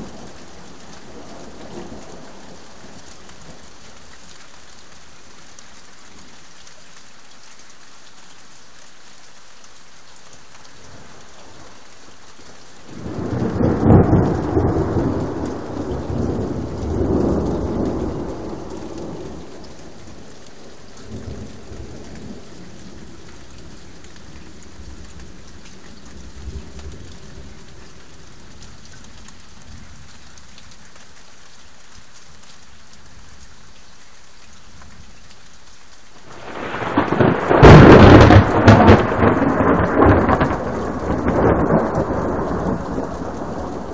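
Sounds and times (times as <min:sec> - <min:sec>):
rain hiss: 0:00.0 - 0:43.9
thunder: 0:12.9 - 0:19.4, 0:36.2 - 0:43.9.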